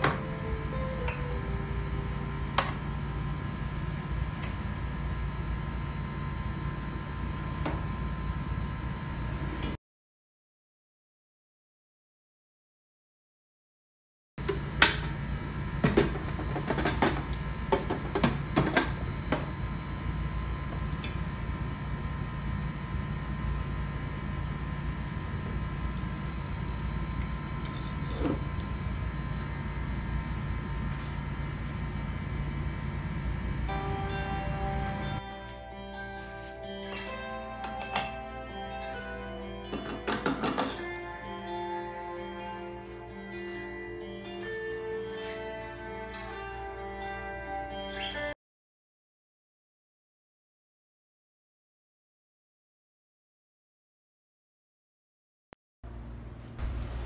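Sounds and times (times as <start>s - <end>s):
steady low hum: 0.0s - 9.8s, 14.4s - 47.9s, 55.9s - 57.0s.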